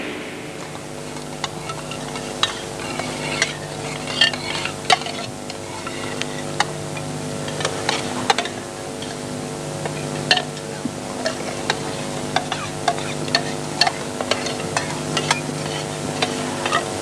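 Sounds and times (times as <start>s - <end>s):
steady low hum: 0.0s - 6.4s.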